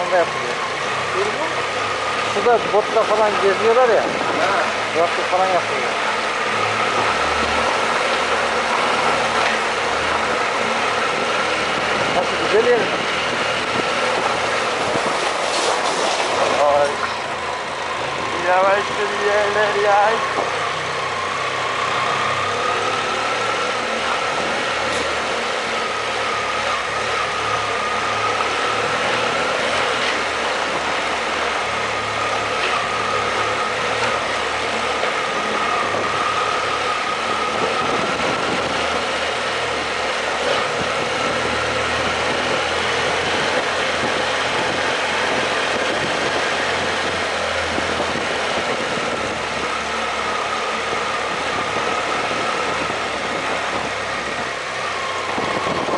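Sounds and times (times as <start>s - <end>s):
road noise: 0.0s - 55.9s.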